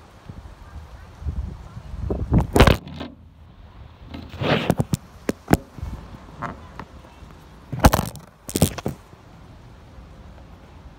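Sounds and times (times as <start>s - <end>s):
camera rubbing scrapes: 2.4s - 3.1s, 4.1s - 5.7s, 7.7s - 9.0s.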